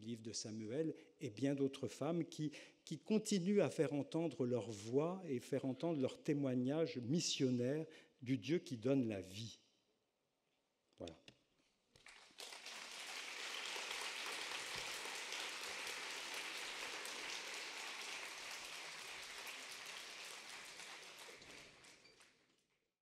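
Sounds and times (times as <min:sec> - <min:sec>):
audience applauding: 0:12.0 - 0:22.6.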